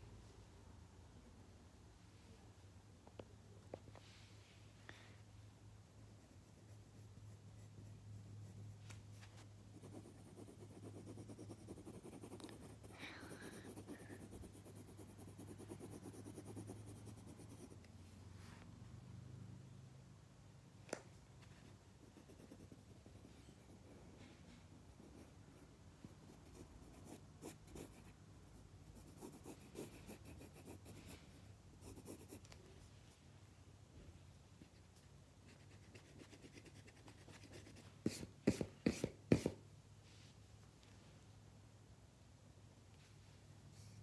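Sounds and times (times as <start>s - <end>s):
pencil scratching on paper: 9.5s - 17.9s, 22.0s - 23.9s, 26.0s - 28.2s, 28.9s - 31.2s, 31.8s - 32.5s, 35.4s - 39.6s.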